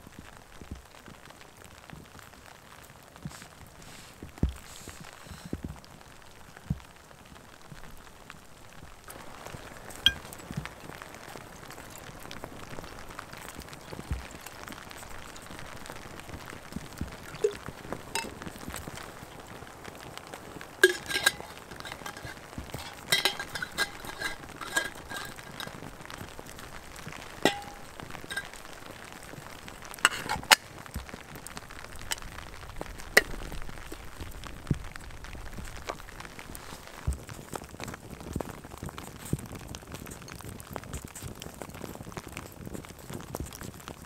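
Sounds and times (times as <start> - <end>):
campfire crackling: 0.0 - 44.0
kettle being filled: 17.0 - 18.4, 20.8 - 28.8, 30.0 - 30.6
metal clinks and knocks: 18.2 - 18.4, 20.8 - 25.8, 27.4 - 28.6, 30.1 - 30.6.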